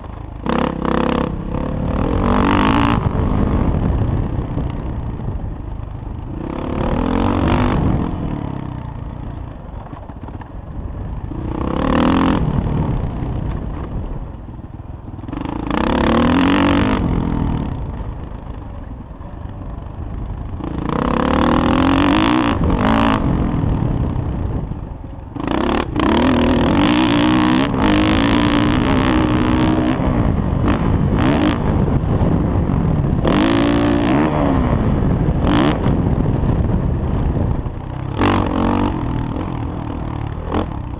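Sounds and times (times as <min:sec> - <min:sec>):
dirt bike engine revving: 0:00.0 - 0:04.6, 0:06.1 - 0:09.3, 0:11.0 - 0:14.0, 0:15.3 - 0:18.1, 0:20.4 - 0:24.7, 0:25.3 - 0:40.9.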